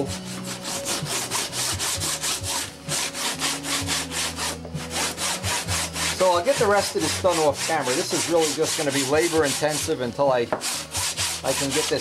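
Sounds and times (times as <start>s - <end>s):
sandpaper scratching back and forth: 0.0s - 12.0s.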